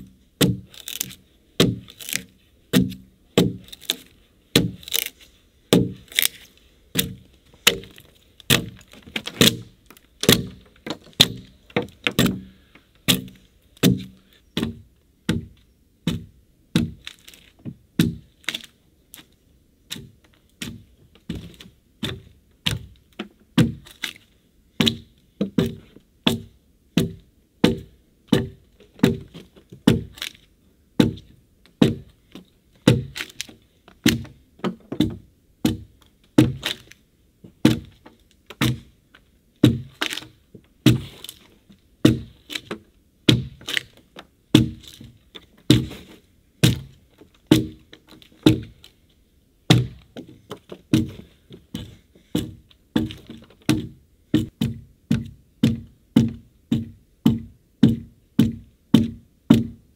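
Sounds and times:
axe chopping into a log: 0.4s - 4.0s, 4.6s - 5.1s, 5.7s - 6.1s, 10.2s - 10.6s, 12.1s - 12.4s, 13.1s - 15.5s, 42.0s - 42.4s, 43.3s - 43.9s, 44.5s - 45.1s, 45.7s - 46.9s, 48.5s - 48.7s, 49.7s - 50.0s.

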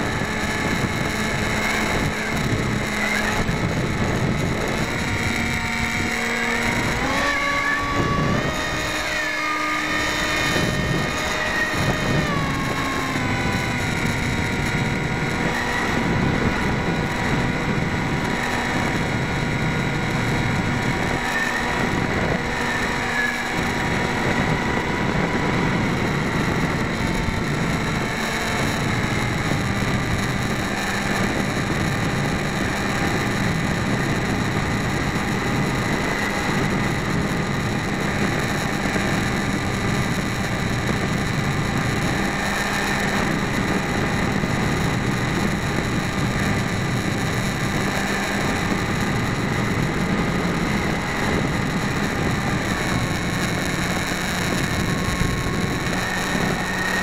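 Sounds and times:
electric motor whine: 0.0s - 57.0s.

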